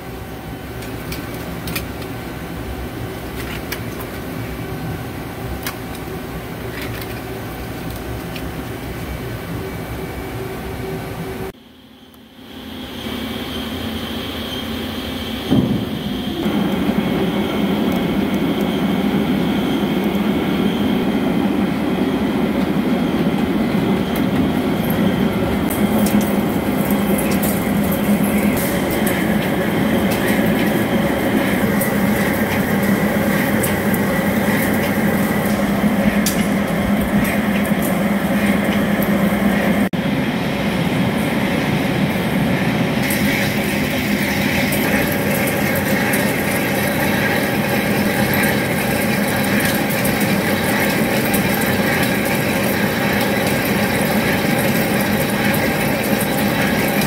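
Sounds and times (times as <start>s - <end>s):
lathe machine hum: 12.4s - 57.0s.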